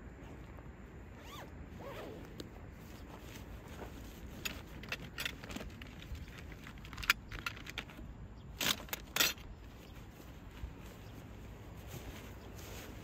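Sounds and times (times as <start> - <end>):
metallic clinks of gear: 4.3 - 9.6
rustling scrapes: 9.7 - 13.0.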